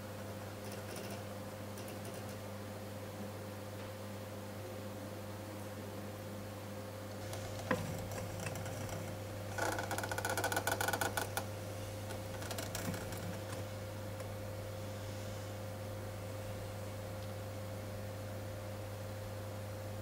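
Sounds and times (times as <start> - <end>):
steady low hum: 0.0 - 20.0
buzzing rattle: 0.6 - 2.4, 7.1 - 14.4.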